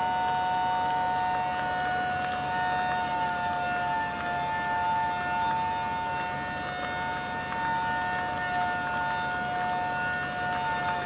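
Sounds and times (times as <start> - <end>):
fire engine sirens: 0.0 - 11.0.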